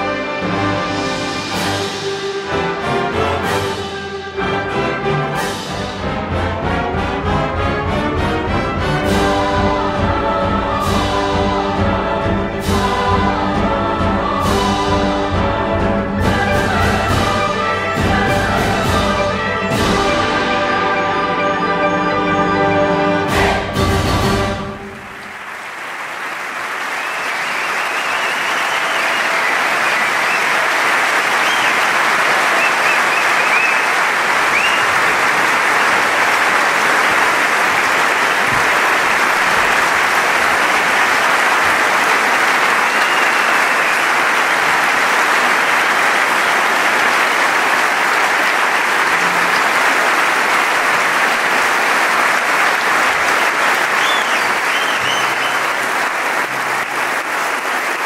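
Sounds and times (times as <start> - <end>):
audience applauding: 24.6 - 58.0.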